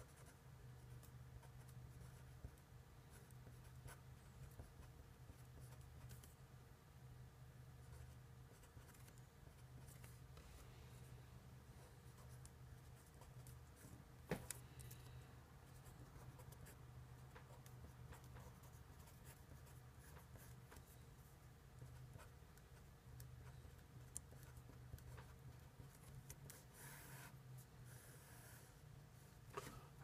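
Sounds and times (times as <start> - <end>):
low steady hum: 0.0 - 30.0
marker writing on paper: 15.8 - 16.8, 17.4 - 20.9, 21.8 - 27.3.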